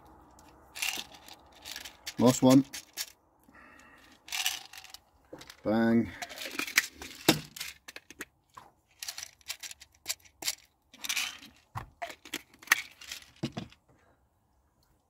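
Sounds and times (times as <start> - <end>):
plastic tubs clicking and rattling: 4.3 - 5.6, 9.0 - 13.8.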